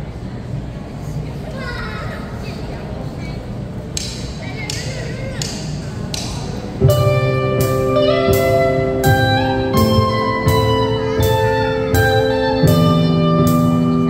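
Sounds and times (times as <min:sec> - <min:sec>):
bass: 0:05.7 - 0:14.0
cymbal strikes: 0:06.8 - 0:14.0
electric guitars: 0:06.8 - 0:14.0
steady drum beat: 0:06.8 - 0:14.0.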